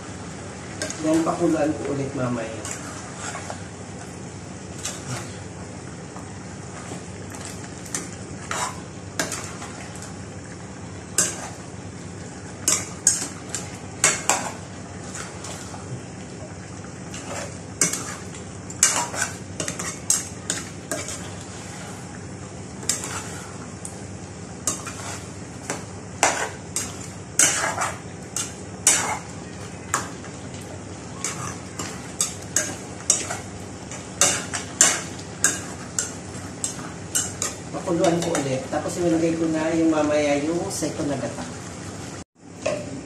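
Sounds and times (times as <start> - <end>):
chicken frying hiss: 0.0 - 43.0
metal spoon scraping a pot: 18.8 - 22.0, 22.9 - 23.6, 24.7 - 25.3, 26.2 - 29.3, 31.2 - 33.5.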